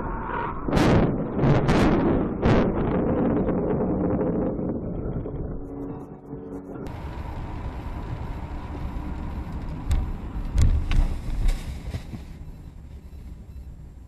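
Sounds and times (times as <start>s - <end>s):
faint steady whine: 5.2s - 14.0s
road and engine noise: 5.2s - 14.0s.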